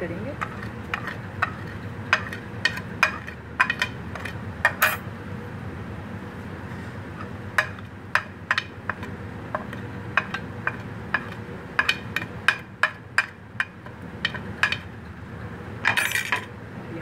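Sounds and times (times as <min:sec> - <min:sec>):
utensils clinking on steel dishes: 0:02.2 - 0:05.0, 0:15.9 - 0:16.5.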